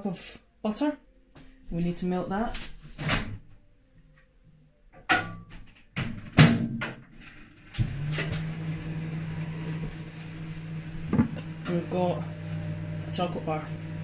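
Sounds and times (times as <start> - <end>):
microwave humming with fan hiss: 7.4 - 14.0.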